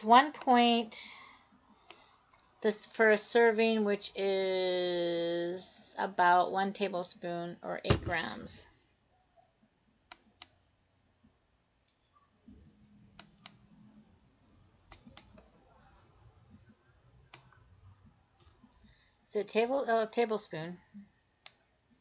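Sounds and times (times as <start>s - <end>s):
computer mouse clicking: 13.2s - 13.6s, 14.9s - 15.5s.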